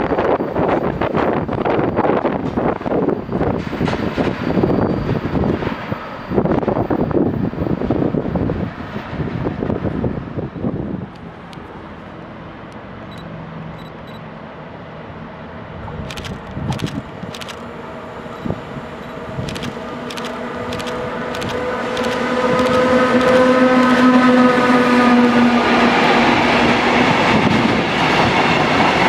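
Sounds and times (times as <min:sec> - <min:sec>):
wind buffeting microphone: 0:00.0 - 0:11.2, 0:20.6 - 0:29.0
electric locomotive humming whine: 0:00.0 - 0:29.0
train clicks: 0:16.0 - 0:17.7, 0:19.0 - 0:24.4.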